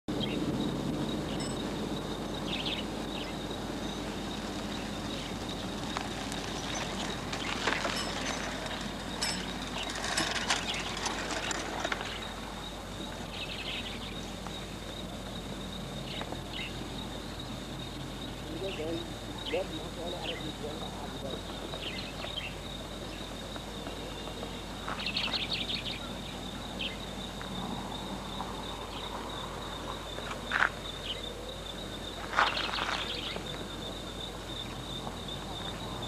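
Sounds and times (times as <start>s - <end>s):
bird chirps: 1.1s - 27.1s
thin high steady tone: 1.3s - 1.8s.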